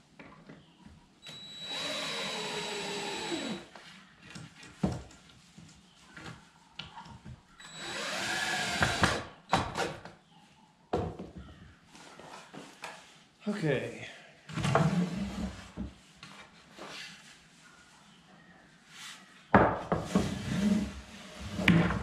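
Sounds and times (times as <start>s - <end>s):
cordless drill whining into wood: 1.2s - 3.7s, 7.6s - 9.3s.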